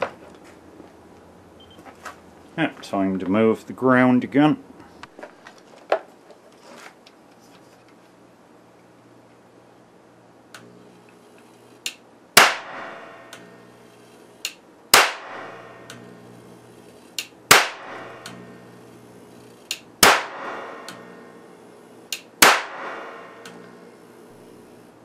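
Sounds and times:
capacitor discharge cracks: 0:10.5 - 0:24.8
small click: 0:11.8 - 0:12.0
low hum: 0:15.2 - 0:25.0.

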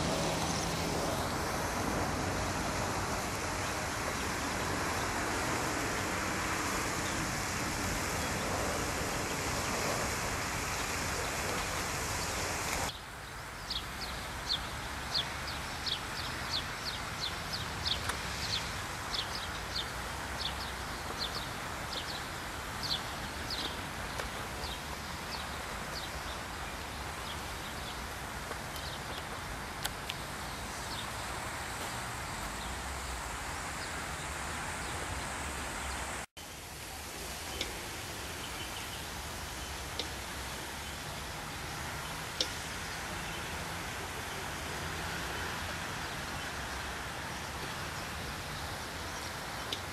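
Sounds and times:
birds chirping: 0:00.0 - 0:36.3
steady hiss: 0:00.0 - 0:49.9.

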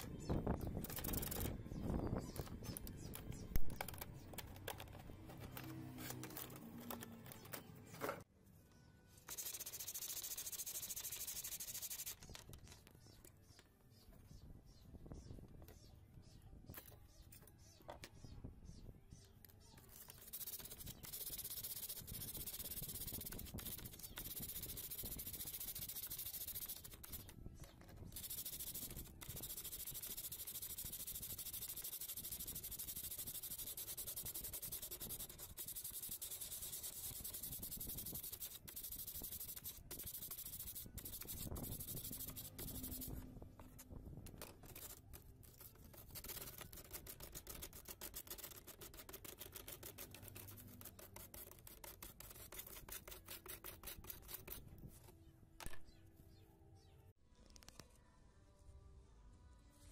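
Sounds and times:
sandpaper rasping on plastic: 0:09.3 - 0:12.4, 0:19.8 - 0:43.8, 0:44.4 - 0:55.0.

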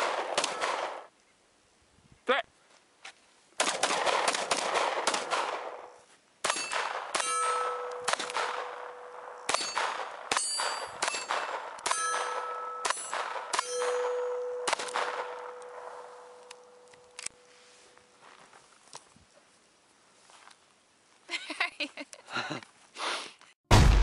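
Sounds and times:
pistol shots: 0:00.0 - 0:01.1, 0:03.6 - 0:16.7
bullets clanging on steel plates: 0:06.5 - 0:17.2.

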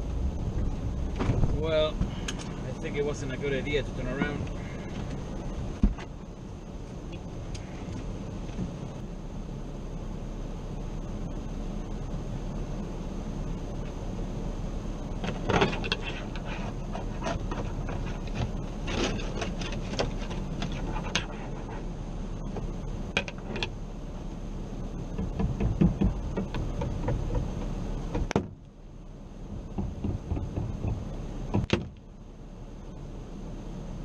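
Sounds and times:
steady hum: 0:00.0 - 0:34.0
ice scraper scraping windshield: 0:15.4 - 0:21.9.

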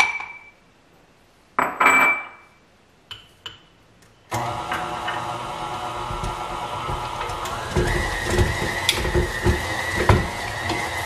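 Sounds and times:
dish clinking against glass bowl: 0:00.0 - 0:00.6, 0:01.6 - 0:02.5
stand mixer motor humming: 0:04.3 - 0:11.0.

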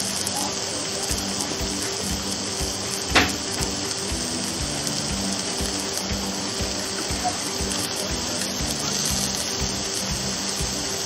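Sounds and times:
vegetables sizzling on a grill: 0:00.0 - 0:11.0
sharp pop: 0:03.1 - 0:03.8.

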